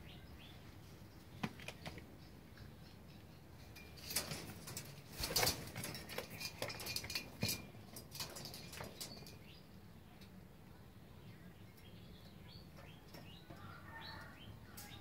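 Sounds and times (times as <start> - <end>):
pigeon feet clicking on metal mesh: 1.4 - 9.6, 11.7 - 15.0.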